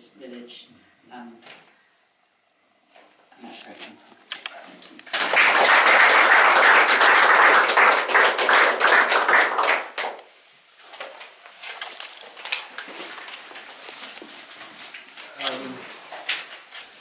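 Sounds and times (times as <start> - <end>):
audience applauding: 5.1 - 10.2.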